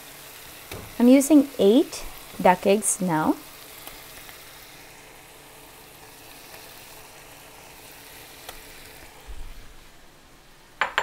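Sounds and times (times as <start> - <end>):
gravy sizzling in a pan: 0.0 - 11.0.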